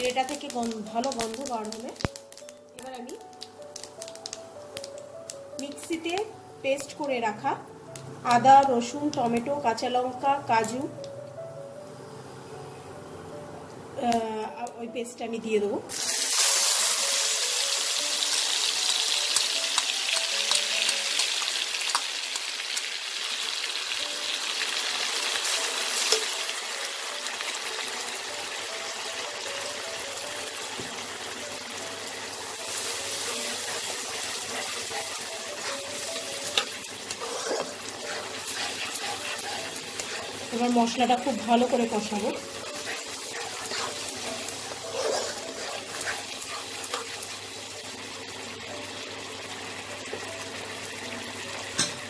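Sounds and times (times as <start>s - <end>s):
spice paste sizzling in oil: 0.0s - 10.9s, 15.9s - 51.9s
metal spatula scraping pan: 33.3s - 40.7s, 42.7s - 47.2s.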